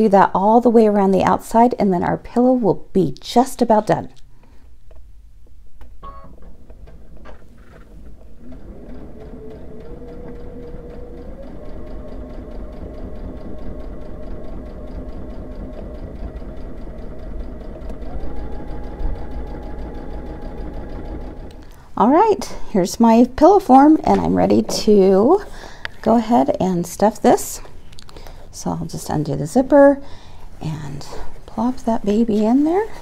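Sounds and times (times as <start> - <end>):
sewing machine motor whine: 8.2 - 21.8.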